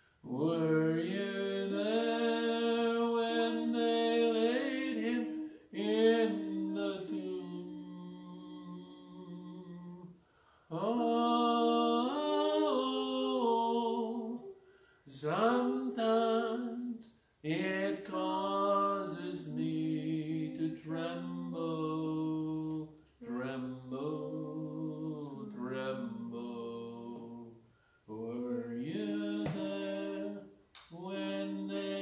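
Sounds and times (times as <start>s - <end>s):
person singing unaccompanied: 0.2s - 10.1s, 10.7s - 32.0s
singer breathing: 10.2s - 10.7s, 14.5s - 15.1s, 27.6s - 28.1s.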